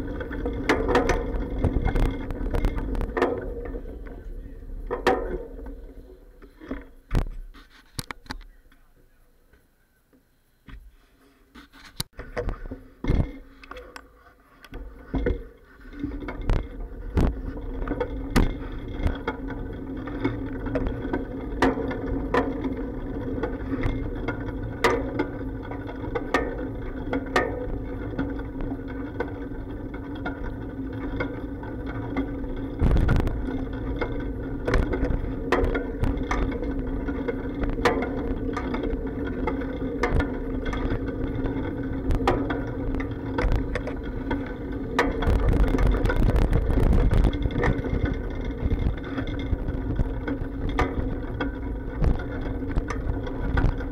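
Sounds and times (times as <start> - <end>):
bicycle rolling rumble: 0.0 - 7.8, 12.1 - 53.9
clacks and bumps: 0.0 - 8.3, 14.7 - 53.9.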